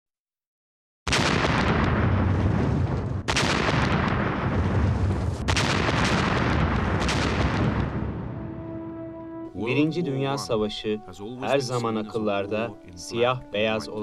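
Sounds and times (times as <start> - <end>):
artillery shots cracking: 1.1 - 8.8
artillery blast and rumble: 1.1 - 8.9.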